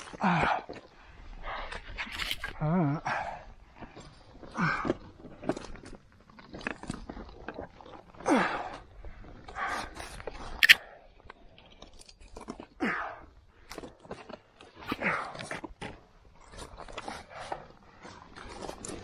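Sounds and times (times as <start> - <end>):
person breathing hard: 8.2 - 11.1
sharp click: 10.6 - 10.8.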